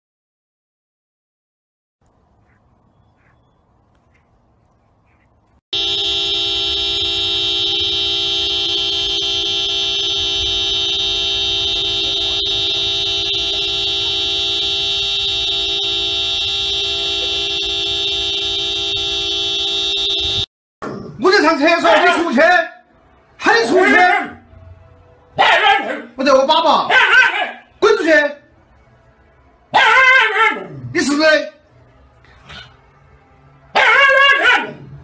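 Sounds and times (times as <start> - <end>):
car horn steady note: 5.7 - 20.5.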